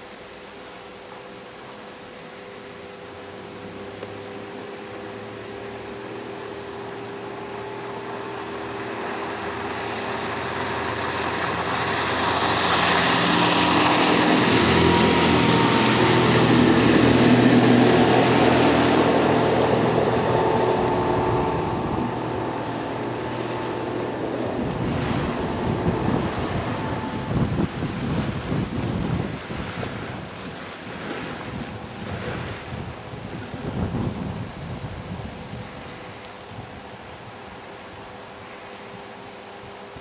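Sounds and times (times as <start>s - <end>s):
hull rushing through water: 0.0s - 40.0s
outboard motor running: 0.8s - 35.1s
wind buffeting microphone: 7.6s - 37.6s.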